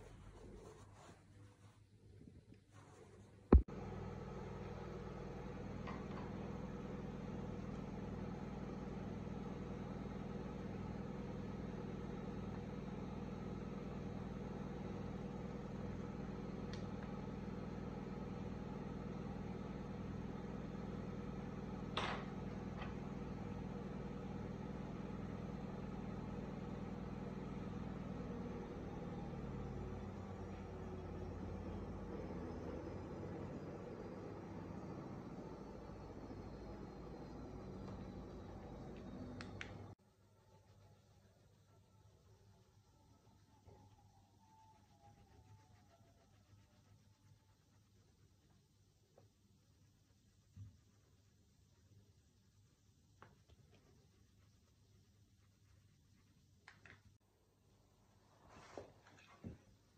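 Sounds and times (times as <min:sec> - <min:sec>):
scratchy sound: 0:00.0 - 0:03.6
low mechanical hum: 0:00.0 - 0:59.9.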